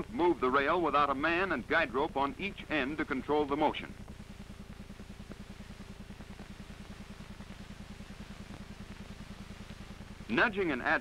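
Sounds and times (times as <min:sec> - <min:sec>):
faint steady tone: 0:00.0 - 0:11.0
low pulsing hum: 0:00.0 - 0:11.0.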